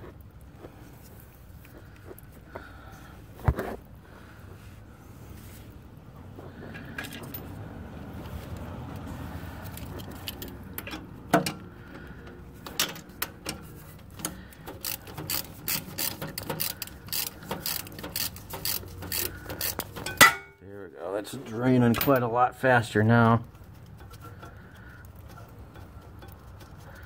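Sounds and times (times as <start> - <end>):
ratchet wrench clicking: 12.6 - 20.4.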